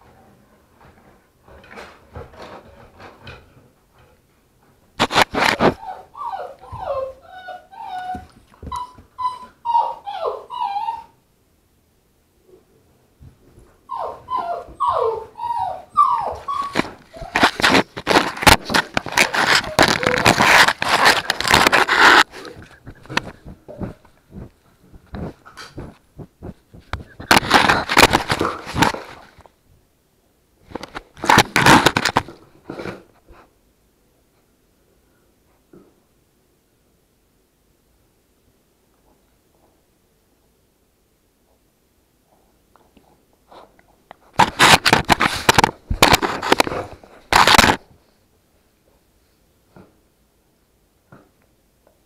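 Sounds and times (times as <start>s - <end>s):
puppies whining and yelping: 5.6s - 11.2s, 13.9s - 17.8s, 18.7s - 23.1s
puppies chewing on plastic: 16.4s - 29.5s, 30.7s - 33.0s, 44.3s - 47.9s.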